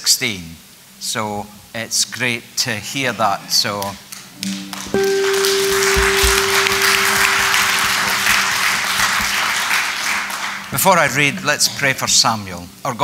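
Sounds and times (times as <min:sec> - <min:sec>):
held tone: 0:05.0 - 0:09.0
congregation applauding: 0:05.0 - 0:11.2.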